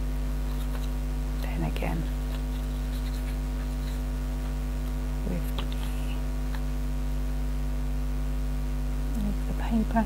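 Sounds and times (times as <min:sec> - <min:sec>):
electrical mains hum: 0:00.0 - 0:10.0
paper rustling and tapping: 0:00.5 - 0:01.0, 0:02.2 - 0:05.9.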